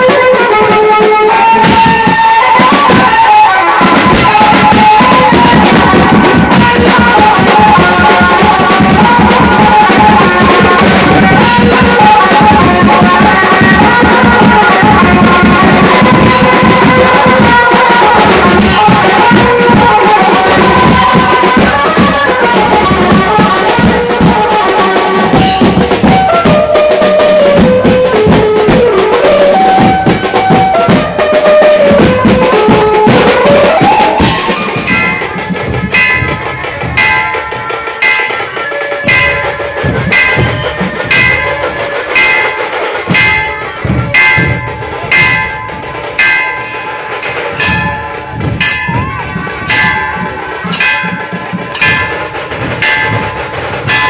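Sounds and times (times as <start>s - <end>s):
amplified melody: 0.0s - 54.0s
fast snare and kit drumming: 0.0s - 54.0s
ringing metallic strokes: 34.7s - 54.0s.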